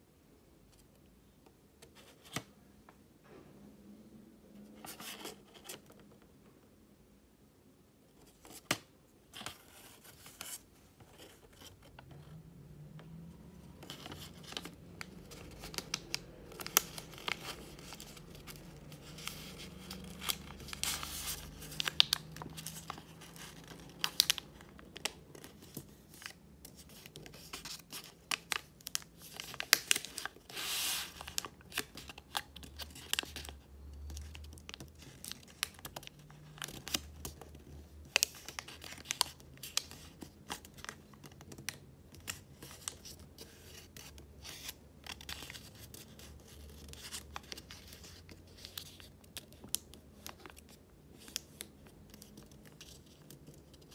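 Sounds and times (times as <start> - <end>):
paper rustling and crinkling: 13.7 - 53.9.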